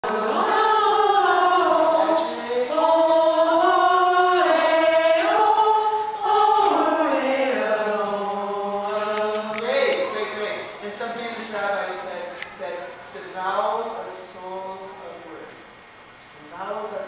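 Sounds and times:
women's choir singing: 0:00.0 - 0:09.7.

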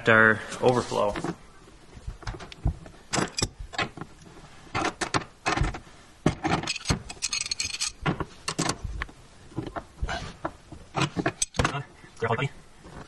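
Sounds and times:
metal tools clinking: 0:03.1 - 0:03.6, 0:06.5 - 0:08.7.

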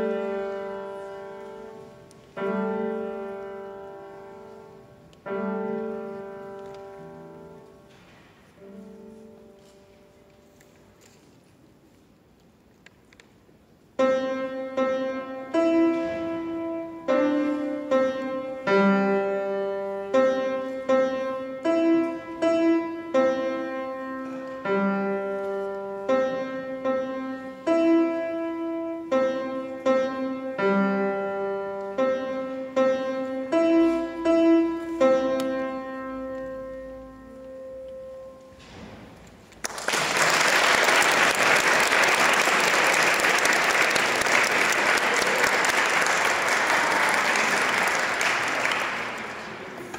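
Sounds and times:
grand piano piece: 0:00.0 - 0:12.6, 0:13.5 - 0:49.9
audience applause: 0:39.6 - 0:49.9.

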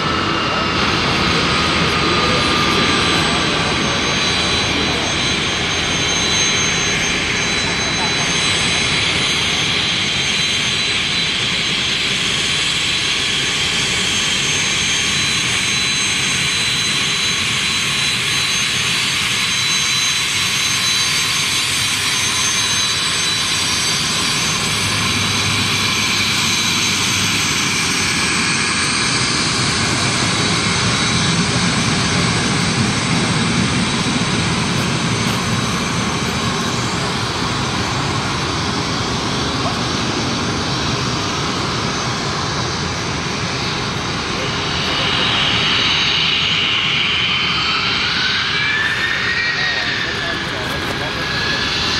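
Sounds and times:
jet engine whine: 0:00.0 - 0:51.9.

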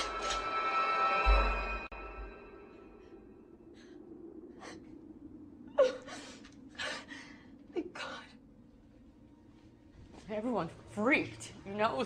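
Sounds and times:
low steady hum: 0:01.3 - 0:12.0.

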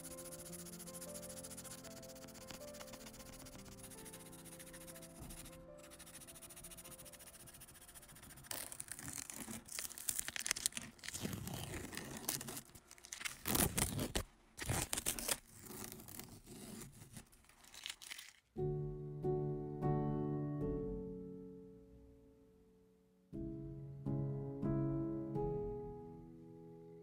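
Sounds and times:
masking tape peeling off paper: 0:00.0 - 0:18.5.

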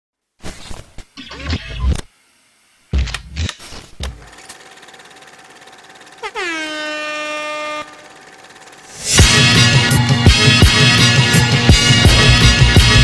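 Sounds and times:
horn-like blast dropping in pitch: 0:06.2 - 0:08.1
short low hits: 0:11.7 - 0:13.0.

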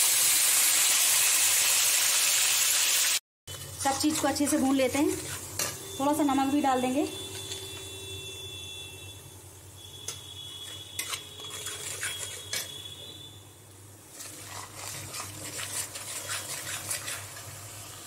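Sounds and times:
paste frying in oil: 0:00.0 - 0:07.8, 0:10.3 - 0:13.2, 0:14.0 - 0:18.0
metal spatula scraping pan: 0:03.5 - 0:08.0, 0:10.1 - 0:13.2, 0:14.1 - 0:17.8.

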